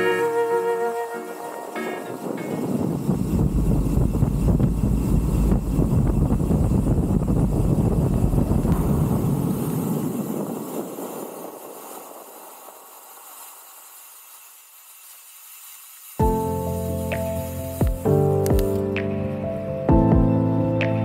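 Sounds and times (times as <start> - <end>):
bicycle road rumble: 0.0 - 21.0
wind rushing over microphone: 1.3 - 13.6.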